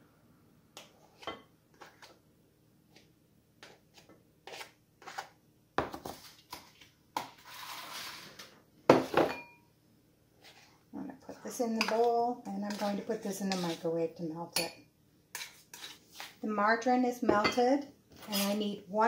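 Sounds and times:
knife scraping and tapping: 3.6s - 7.4s, 12.7s - 13.8s, 15.3s - 16.4s.

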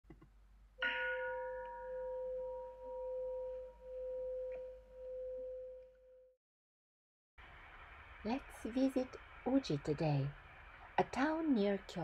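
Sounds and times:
bowl bell ringing: 0.8s - 6.3s.

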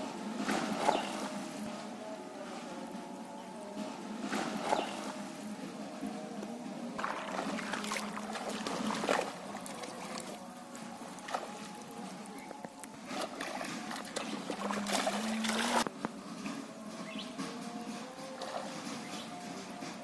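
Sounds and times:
water splashing and sloshing: 0.0s - 20.0s.

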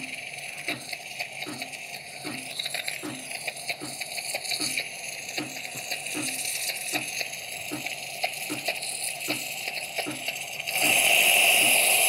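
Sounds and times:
loud steady steam hiss: 0.0s - 12.0s
steam wand hissing in pulses: 0.0s - 12.0s.

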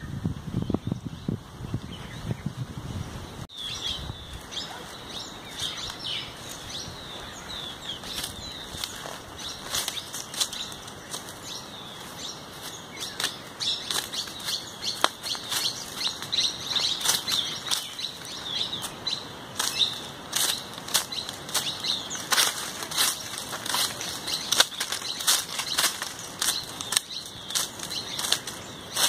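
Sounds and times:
small birds chirping: 3.3s - 29.0s
footsteps crunching dry leaves: 3.5s - 29.0s.

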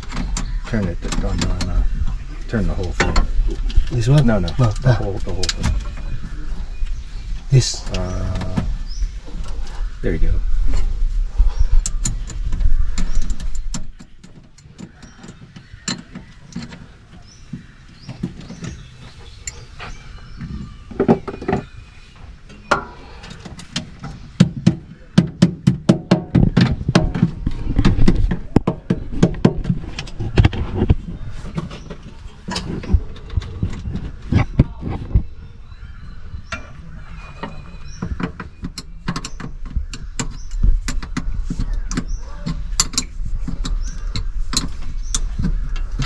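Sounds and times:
low rumbling: 0.0s - 46.0s
tools clanking on metal parts: 2.6s - 6.2s.

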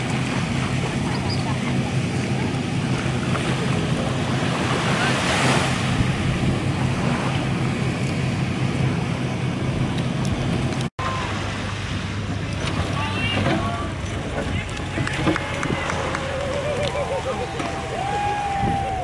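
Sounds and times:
low engine hum: 0.0s - 19.0s
water washing at shore: 0.0s - 19.0s
wind: 0.0s - 19.0s.

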